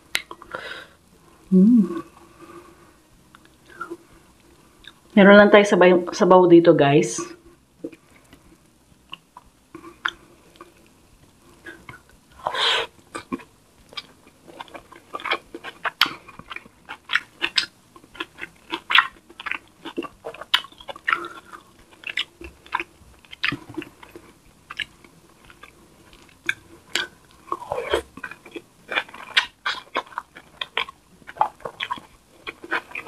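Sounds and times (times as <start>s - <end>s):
chewing and lip-smacking: 0.0s - 0.5s, 2.0s - 5.1s, 7.8s - 33.0s
long noisy mouth sound: 0.2s - 2.8s, 11.6s - 13.5s.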